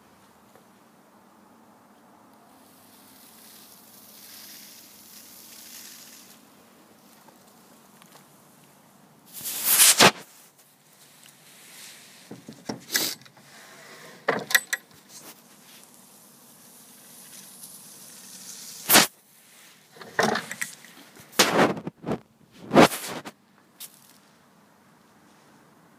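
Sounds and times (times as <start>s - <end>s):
wooden drawers sliding open and shut: 12.3s - 14.9s, 20.0s - 20.7s.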